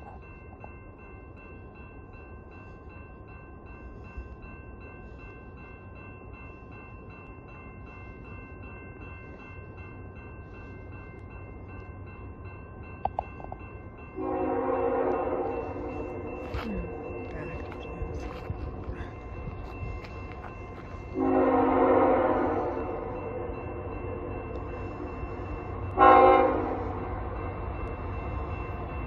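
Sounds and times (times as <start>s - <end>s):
crossing warning bell ringing: 0.0s - 29.0s
freight train rumble: 0.0s - 29.0s
locomotive horn: 14.2s - 16.1s, 21.2s - 23.0s, 26.0s - 27.0s.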